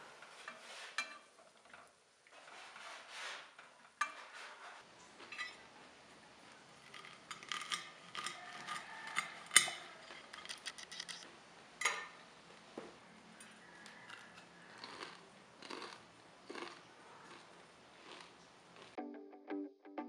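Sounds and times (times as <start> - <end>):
crunching fried crust: 6.4 - 11.2, 13.9 - 19.0.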